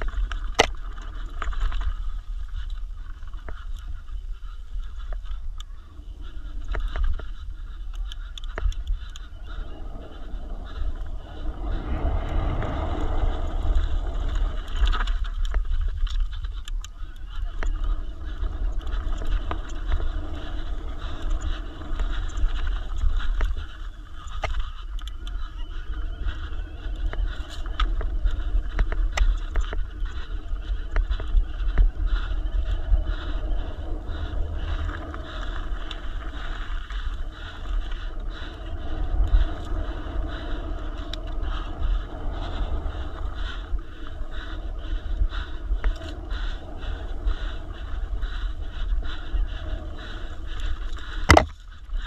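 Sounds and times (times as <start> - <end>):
bike clicks and rattles: 0.0 - 52.0
wind rumbling on microphone: 0.0 - 52.0.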